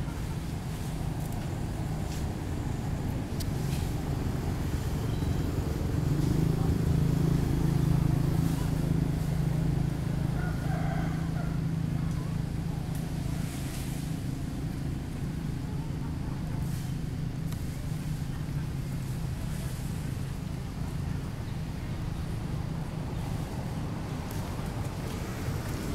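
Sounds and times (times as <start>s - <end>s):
vehicle engine running: 0.0s - 25.9s.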